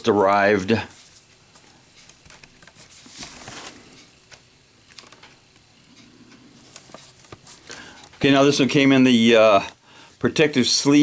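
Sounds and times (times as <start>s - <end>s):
soft rustling: 0.4s - 4.1s.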